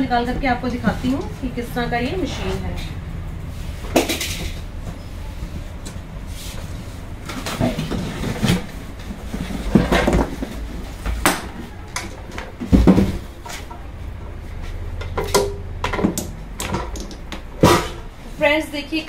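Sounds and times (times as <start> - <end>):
cardboard box rustling and scraping: 6.3 - 11.1.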